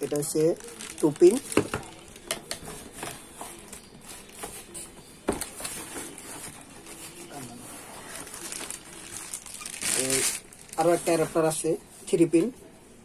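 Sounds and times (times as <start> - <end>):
cardboard rustling and scraping: 2.6 - 11.5.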